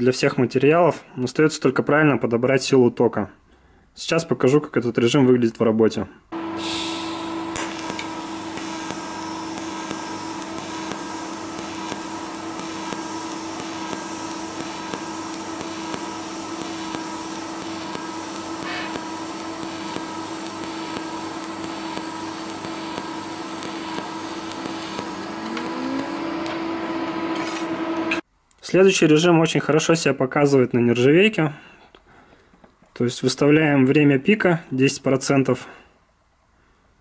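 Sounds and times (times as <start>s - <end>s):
pulsing welding arc hiss and buzz: 6.4s - 28.2s.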